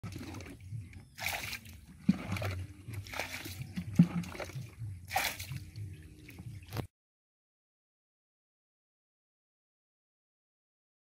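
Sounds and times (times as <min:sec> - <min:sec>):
fish splashing in water: 0:00.0 - 0:06.9.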